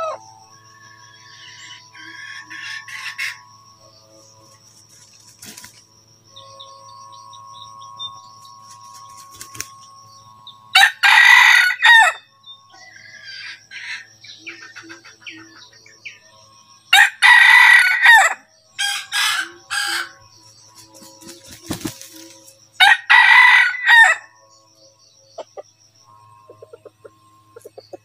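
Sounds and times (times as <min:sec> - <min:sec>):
rooster crowing: 0:00.0 - 0:00.3, 0:10.7 - 0:12.2, 0:16.9 - 0:20.2, 0:22.8 - 0:24.3.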